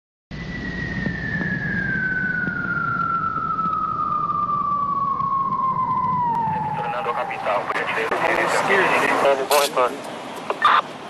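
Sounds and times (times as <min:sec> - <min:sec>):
siren falling in pitch: 0:00.3 - 0:08.8
low rumble: 0:00.3 - 0:09.2.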